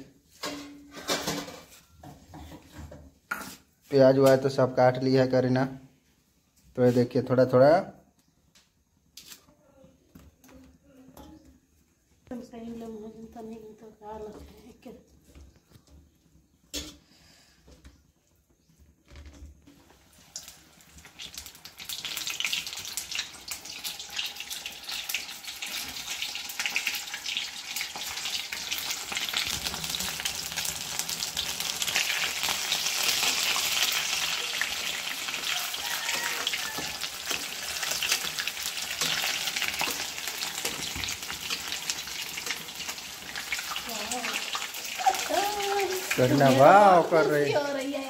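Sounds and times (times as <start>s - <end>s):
fish deep-frying in oil: 19.7s - 47.2s.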